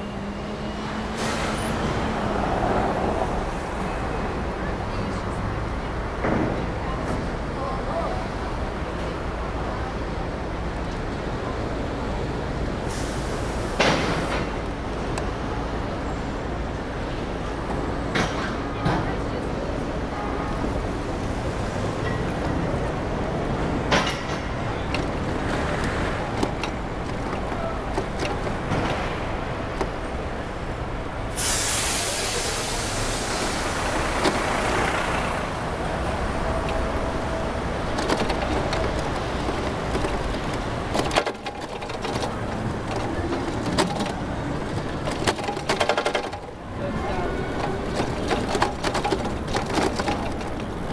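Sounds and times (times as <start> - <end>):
city street traffic: 0.0 - 50.9
air brake hiss: 1.1 - 1.8, 12.9 - 14.4, 31.3 - 33.8.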